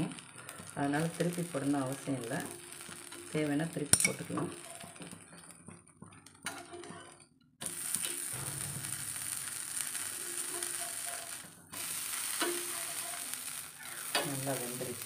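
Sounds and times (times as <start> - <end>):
dosa sizzling on a hot griddle: 0.0 - 7.0, 7.6 - 15.0.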